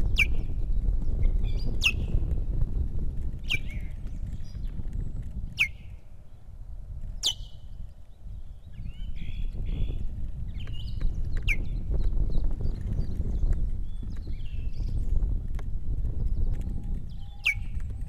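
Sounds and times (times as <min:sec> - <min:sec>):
osprey whistling calls: 0:01.8 - 0:02.1, 0:03.5 - 0:03.8, 0:05.6 - 0:05.8, 0:07.2 - 0:07.7.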